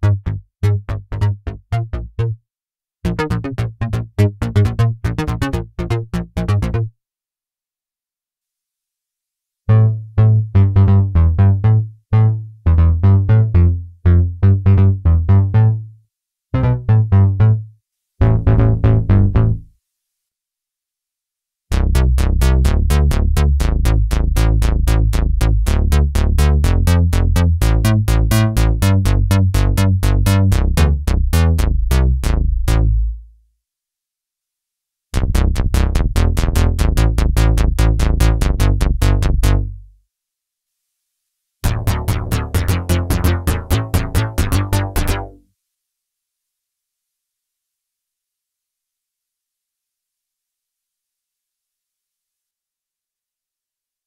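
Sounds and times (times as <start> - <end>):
punchy synth bass notes: 0.0 - 2.4, 3.1 - 6.9, 9.7 - 15.8, 16.6 - 17.6, 18.2 - 19.6, 21.7 - 33.2, 35.2 - 39.8, 41.6 - 45.4
fast clicky synth bass run: 3.1 - 6.8, 21.7 - 33.1, 35.2 - 39.8, 41.6 - 45.4.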